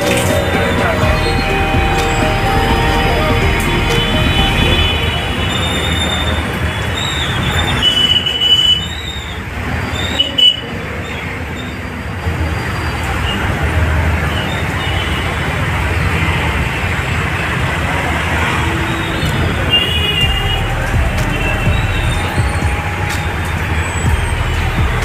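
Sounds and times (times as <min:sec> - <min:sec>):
short high tones: 0:00.0 - 0:07.4
heavy rain hissing: 0:00.0 - 0:08.3
road traffic rumble: 0:00.0 - 0:25.0.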